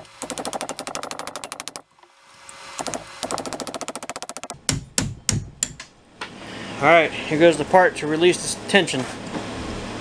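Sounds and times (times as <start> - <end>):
rapid mechanical clicking: 0.2 - 1.8, 2.8 - 4.7.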